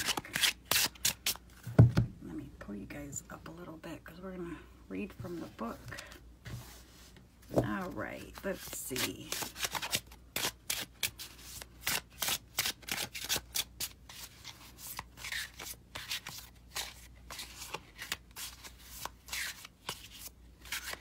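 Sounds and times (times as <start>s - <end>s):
cards being shuffled: 7.5s - 21.0s.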